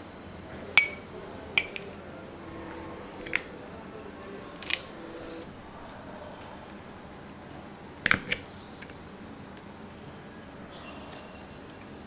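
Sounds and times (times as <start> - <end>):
metal spoon clinking on glass bowl: 0.8 - 2.0.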